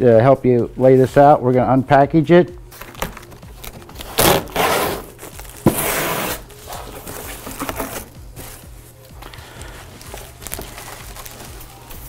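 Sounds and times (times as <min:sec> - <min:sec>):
packing tape tearing: 0:02.7 - 0:08.6, 0:09.2 - 0:12.0
cardboard rustling: 0:02.7 - 0:12.0.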